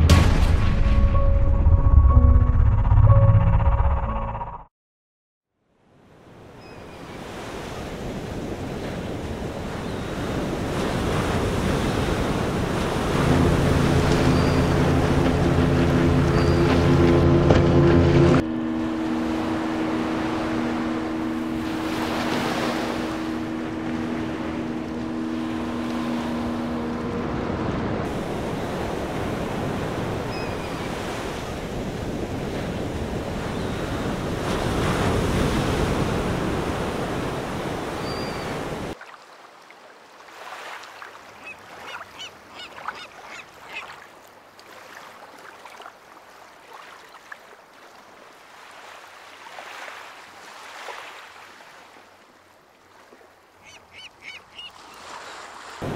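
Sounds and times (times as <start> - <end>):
surf breaking on a beach: 7.0 - 17.2, 18.6 - 39.0, 54.7 - 55.9
low steady hum: 13.2 - 28.7.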